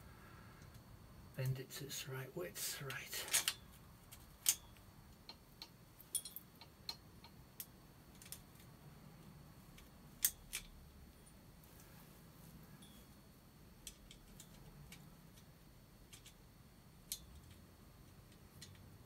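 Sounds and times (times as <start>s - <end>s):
light metallic clicks and taps: 17.0s - 18.9s.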